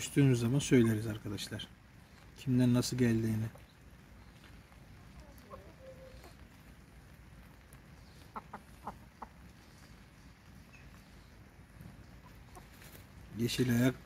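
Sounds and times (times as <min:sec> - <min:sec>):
chickens clucking softly: 0:00.0 - 0:01.5, 0:04.4 - 0:06.9, 0:07.5 - 0:14.0.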